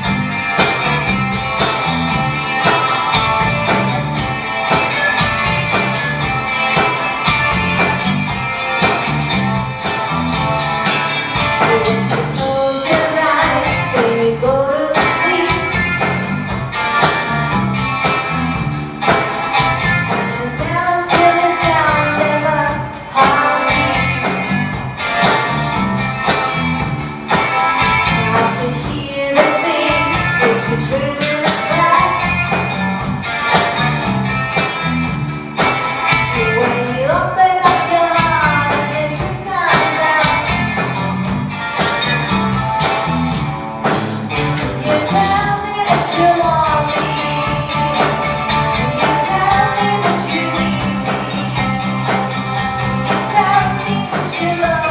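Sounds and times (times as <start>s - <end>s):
bass guitar: 0.0s - 54.9s
drums keeping a steady beat: 0.0s - 54.9s
electric rhythm guitar: 0.0s - 54.9s
woman singing lead: 11.4s - 16.3s, 20.1s - 25.4s, 27.8s - 32.8s, 36.3s - 40.9s, 44.6s - 54.9s.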